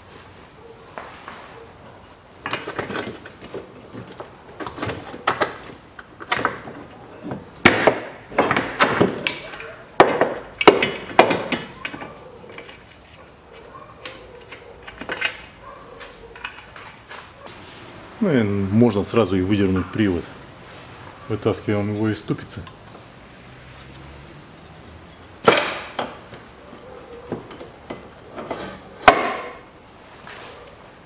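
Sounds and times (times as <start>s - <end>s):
metal clanks and knocks: 2.4s - 12.9s, 13.5s - 17.2s, 25.1s - 29.6s.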